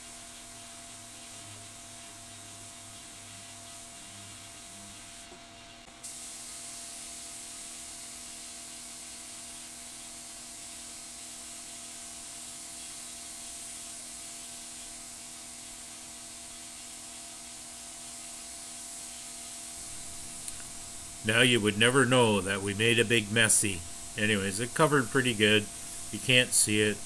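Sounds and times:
paint spray gun hissing: 0:06.0 - 0:27.0
faint steady hum: 0:19.7 - 0:27.0.

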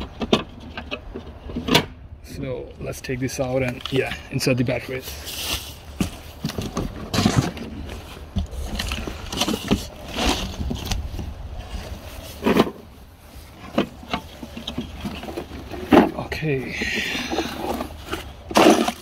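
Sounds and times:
cardboard box rustling: 0:05.0 - 0:19.0
plastic mower being handled: 0:05.0 - 0:19.0.

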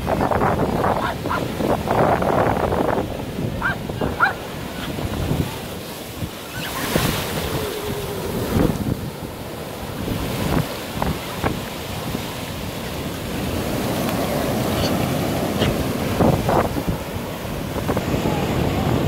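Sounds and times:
sea surf washing ashore: 0:00.0 - 0:19.0
wind rumbling on microphone: 0:00.0 - 0:19.0.

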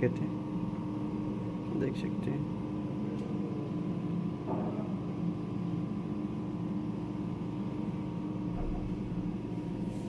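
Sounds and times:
oxygen equipment hum and hiss: 0:00.0 - 0:10.0.

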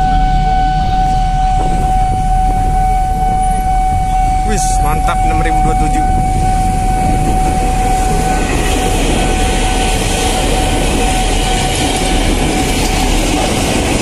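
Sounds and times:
thin high tone: 0:00.0 - 0:13.0
train wheels rushing on rail: 0:00.0 - 0:14.0
clickety-clack over rail joints: 0:07.0 - 0:14.0.

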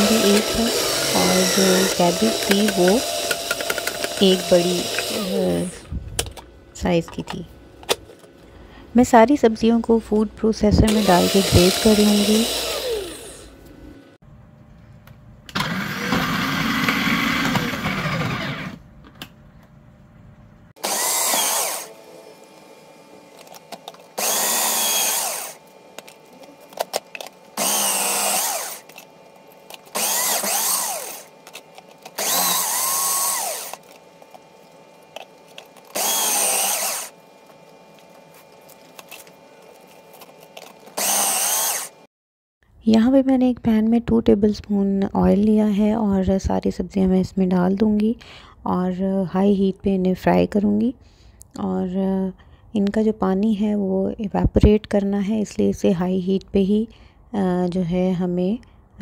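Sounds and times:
food processor motor whining: 0:00.0 - 0:06.3, 0:10.8 - 0:13.6, 0:15.5 - 0:18.9, 0:20.8 - 0:42.1.

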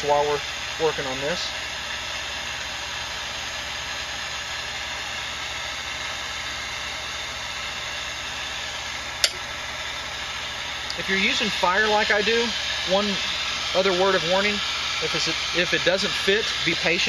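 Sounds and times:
engine-like hum: 0:00.0 - 0:17.0
sharp click: 0:09.2 - 0:09.4.

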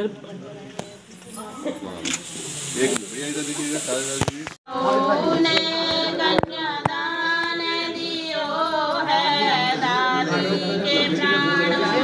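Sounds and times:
woman singing: 0:04.7 - 0:12.0.

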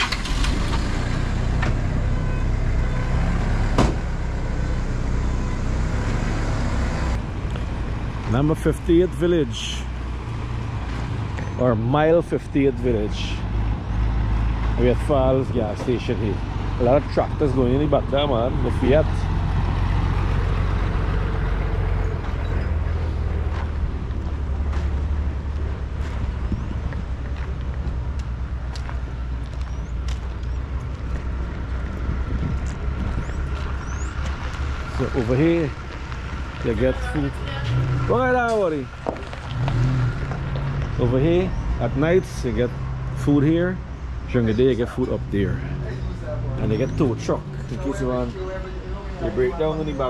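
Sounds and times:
road noise: 0:00.0 - 0:50.0
vehicle engine rumble: 0:00.0 - 0:50.0
sharp knock: 0:03.8 - 0:04.0.

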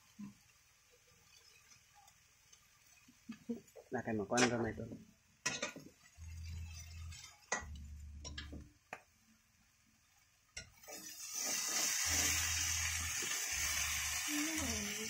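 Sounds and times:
greens sizzling: 0:00.0 - 0:15.0
metal spoon scraping a frying pan: 0:05.4 - 0:08.5, 0:10.6 - 0:14.1.

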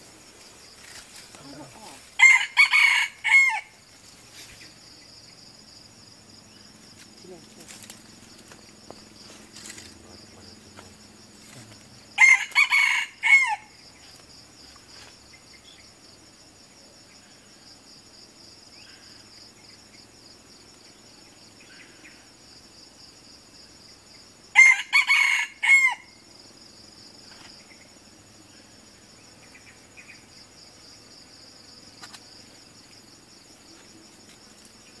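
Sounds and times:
high insect drone: 0:00.0 - 0:35.0
rooster crowing: 0:02.2 - 0:03.8, 0:12.1 - 0:13.8, 0:24.5 - 0:26.2.

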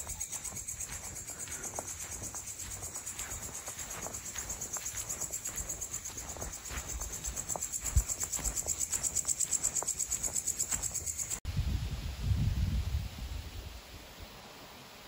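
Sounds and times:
footsteps on grass: 0:00.0 - 0:11.4
night insects trilling: 0:00.0 - 0:11.4.

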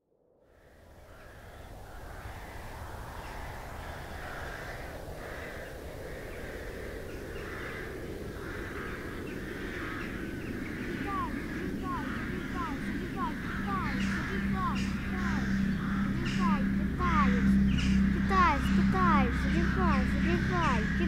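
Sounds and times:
crows cawing: 0:00.9 - 0:21.0
low outdoor rumble: 0:08.4 - 0:21.0.

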